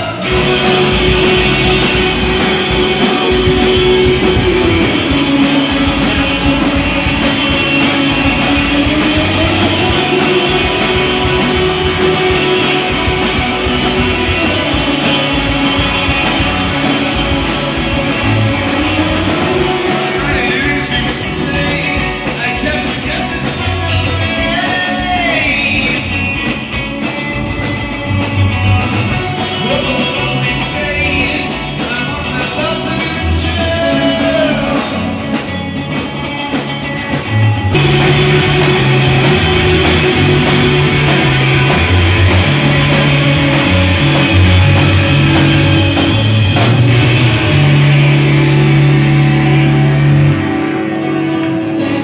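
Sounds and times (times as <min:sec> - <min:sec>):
man singing long sliding notes: 0:00.0 - 0:26.1, 0:29.0 - 0:35.2
guitar accompaniment: 0:00.0 - 0:52.0.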